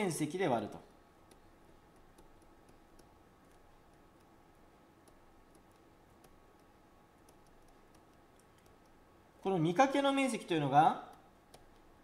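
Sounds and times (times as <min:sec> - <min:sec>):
faint room hum: 0:00.0 - 0:12.0
stylus tapping on screen: 0:00.7 - 0:09.7, 0:11.0 - 0:12.0.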